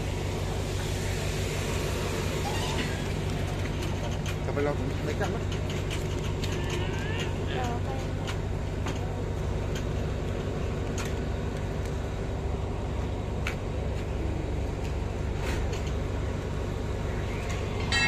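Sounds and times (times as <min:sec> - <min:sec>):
train carriages rumbling past: 0:00.0 - 0:18.0
wheels clicking: 0:02.4 - 0:12.0.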